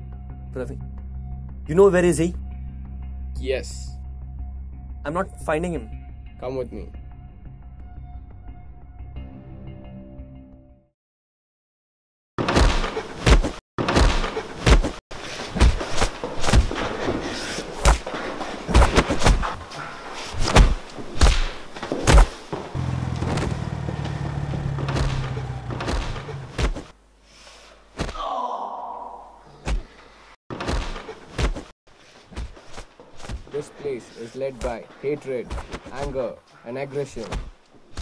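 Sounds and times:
heavy thumps and slams: 0:20.4 - 0:26.9.

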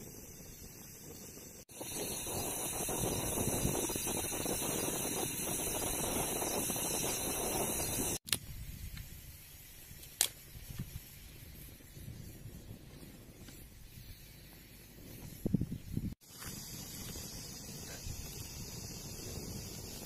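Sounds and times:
wood fire crackling: 0:00.0 - 0:08.3
bamboo tube hissing and sizzling: 0:00.0 - 0:20.0.

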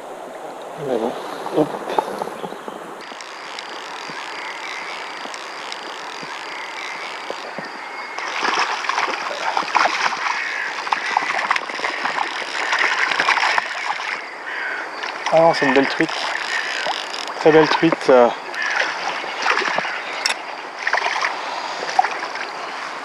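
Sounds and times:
flowing river: 0:00.0 - 0:23.0
fish splashing at surface: 0:08.2 - 0:14.2.

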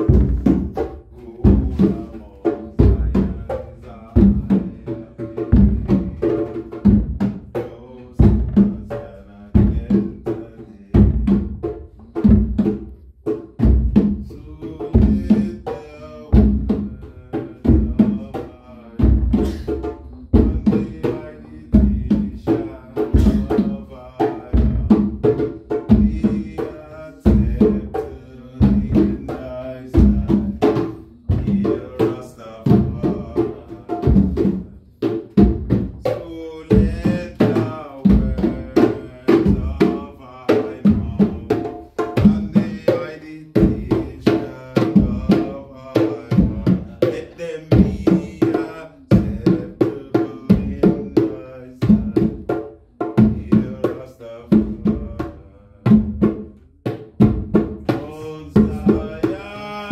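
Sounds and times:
heavy bass drum strokes: 0:00.0 - 0:12.9, 0:16.2 - 0:18.4, 0:19.0 - 0:53.9, 0:57.2 - 0:59.9
hand drumming: 0:00.0 - 0:59.9
voices chanting: 0:58.0 - 0:59.9.

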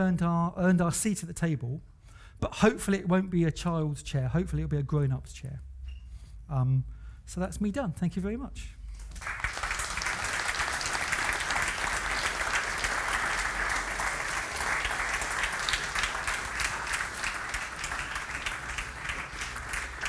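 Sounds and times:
audience applauding: 0:09.0 - 0:20.0.

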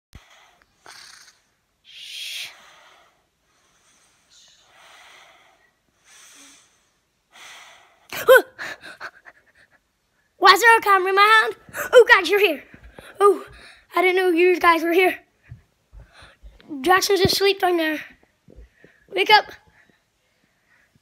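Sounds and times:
short mouth noises: 0:00.8 - 0:01.5
child breathing heavily: 0:02.3 - 0:09.9, 0:11.6 - 0:14.0, 0:15.4 - 0:16.6.

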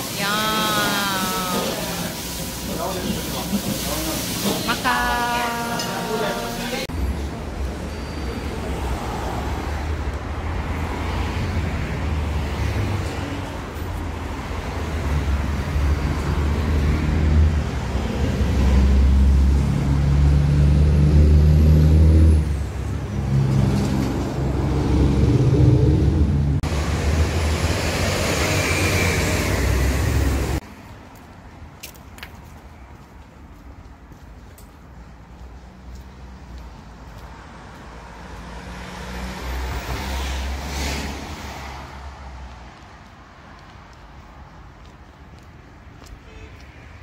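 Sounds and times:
vehicle engine and road rumble: 0:02.2 - 0:47.0.

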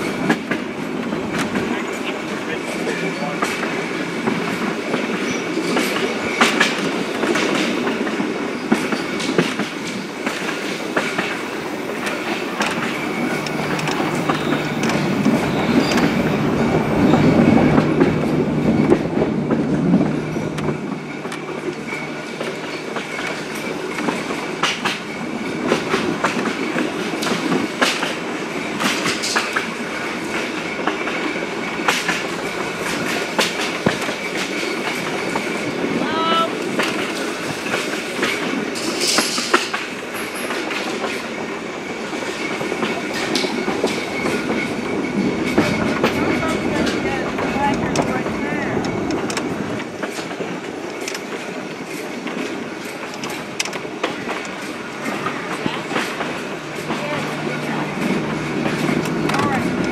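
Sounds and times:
tram wheels rumbling on rail: 0:00.0 - 0:59.9.

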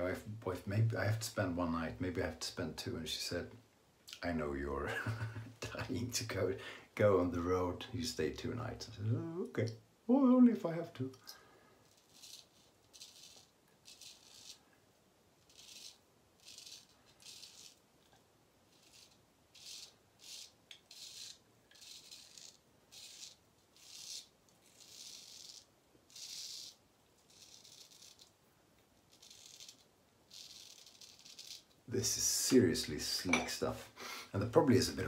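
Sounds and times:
razor scraping stubble: 0:11.8 - 0:14.6, 0:15.4 - 0:17.8, 0:18.7 - 0:28.3, 0:29.0 - 0:33.7.

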